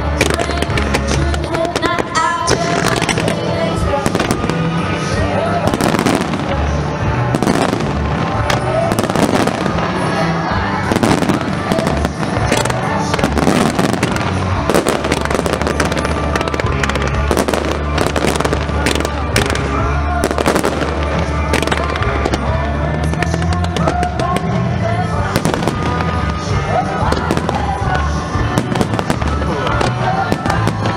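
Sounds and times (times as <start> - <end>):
fireworks bangs and crackles: 0.0 - 30.9
music playing: 0.0 - 30.9.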